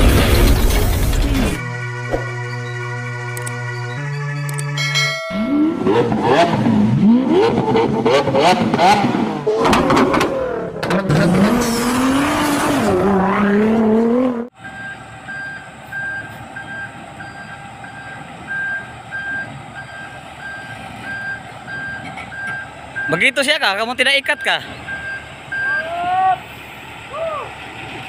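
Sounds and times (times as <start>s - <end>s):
steady engine hum: 1.6s - 12.2s, 14.0s - 28.0s
sports car engine revving: 5.4s - 14.5s
reversing alarm beeping: 14.6s - 23.2s, 24.2s - 25.9s.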